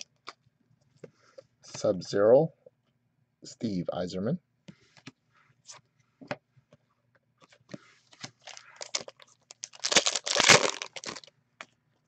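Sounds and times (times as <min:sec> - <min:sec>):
foil wrapper tearing: 0:08.4 - 0:11.3.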